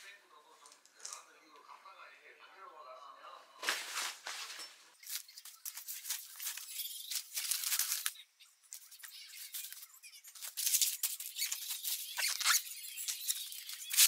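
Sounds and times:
fabric rustling and crinkling: 3.6 - 8.1.

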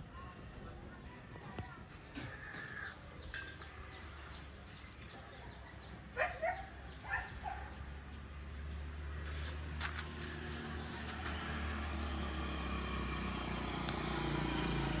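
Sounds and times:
vehicle engine: 6.7 - 15.0.

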